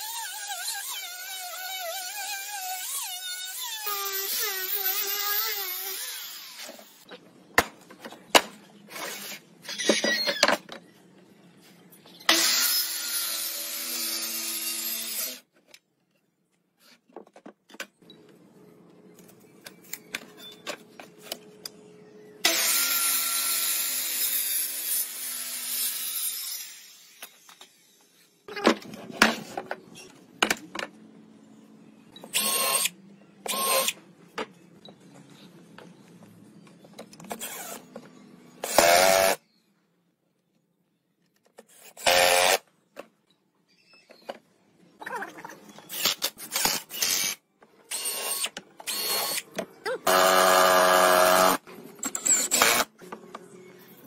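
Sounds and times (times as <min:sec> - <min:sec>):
drill whirring: 0:22.4 - 0:27.3, 0:32.3 - 0:34.0, 0:38.6 - 0:39.4, 0:41.9 - 0:42.6, 0:45.9 - 0:49.4, 0:50.0 - 0:52.9.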